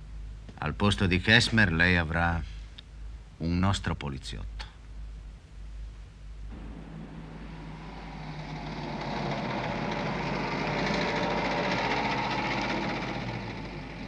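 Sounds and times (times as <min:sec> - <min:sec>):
vehicle passing by: 0:06.5 - 0:14.0.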